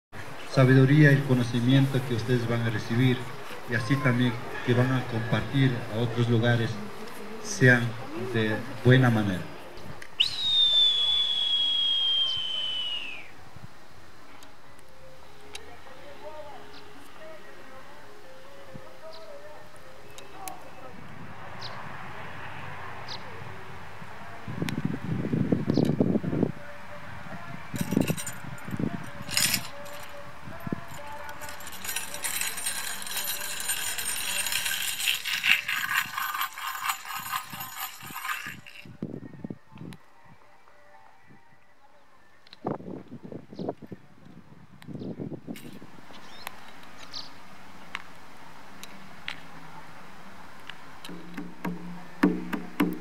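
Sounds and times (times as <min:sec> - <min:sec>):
high whistle sliding lower: 0:10.2 - 0:13.3
jingles shaken: 0:27.8 - 0:38.9.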